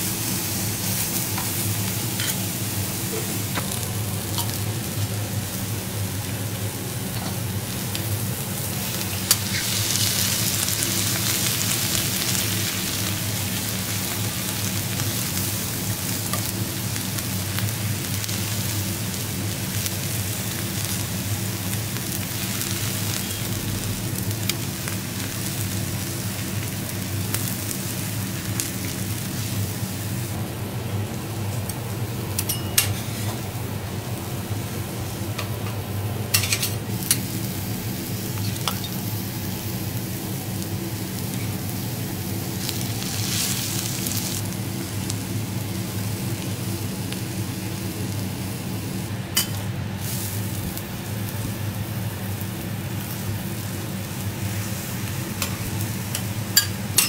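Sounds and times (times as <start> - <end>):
shrimp sizzling on a griddle: 0.0 - 57.0
spatula scraping griddle plate: 2.1 - 2.5.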